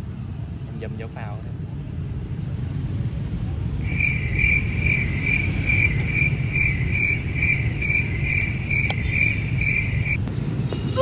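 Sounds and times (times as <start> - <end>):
cricket chirping: 3.8 - 10.2.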